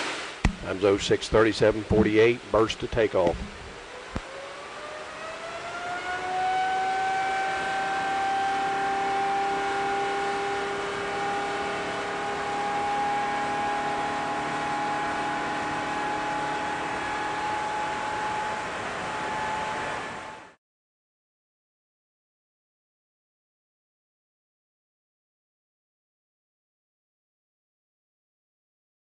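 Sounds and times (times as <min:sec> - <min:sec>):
jet engine spooling up: 0:00.0 - 0:20.6.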